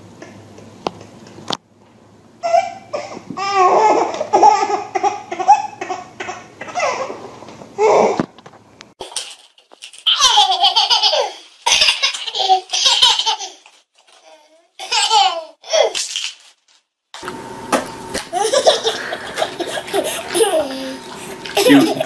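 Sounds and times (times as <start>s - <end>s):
toddler giggling: 18.3s - 22.0s.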